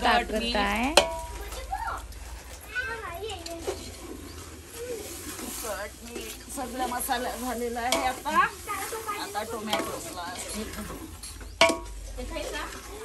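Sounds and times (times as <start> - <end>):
curry sizzling: 0.0 - 13.0
ladle scraping in a pot: 0.5 - 13.0
ladle clanking against pot: 9.7 - 12.1.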